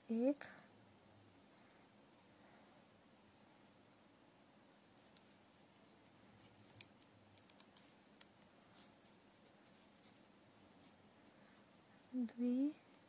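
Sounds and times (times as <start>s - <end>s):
metal knitting needles clicking: 6.6s - 8.4s.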